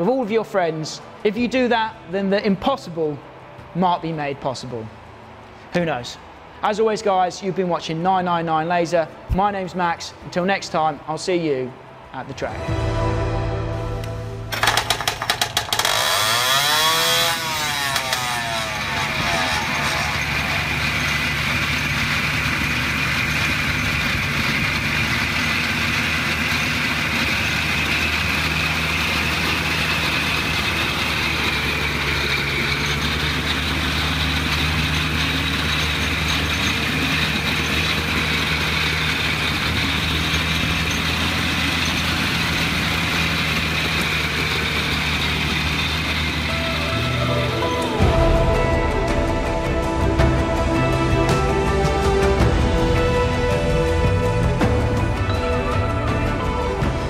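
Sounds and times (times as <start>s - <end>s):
two-stroke engine running: 14.5s - 57.0s.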